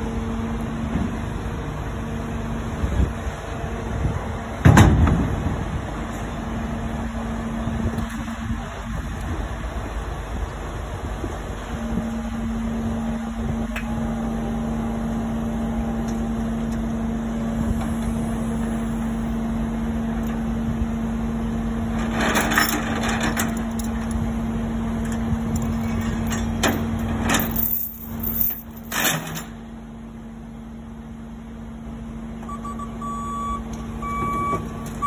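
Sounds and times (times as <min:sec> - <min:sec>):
metal clanking and rattling: 0:22.0 - 0:24.0, 0:25.6 - 0:29.6.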